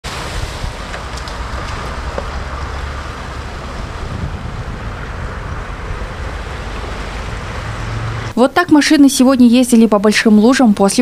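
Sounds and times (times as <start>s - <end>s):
tyres splashing through puddle: 0.0s - 8.4s
car engine running low: 0.1s - 8.4s.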